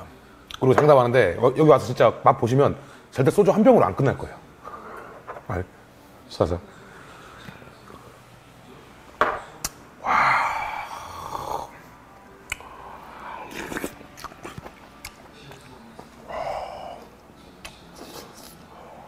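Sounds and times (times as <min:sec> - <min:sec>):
chewing and slurping: 0:13.5 - 0:15.8.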